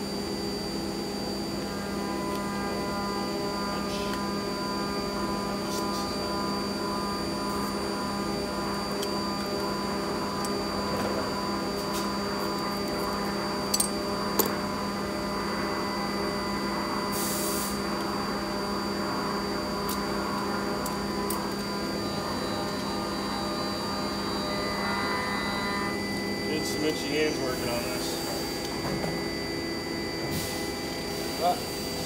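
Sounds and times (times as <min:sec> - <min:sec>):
machine motor humming: 0:00.2 - 0:32.0
burst of hiss: 0:17.1 - 0:17.8.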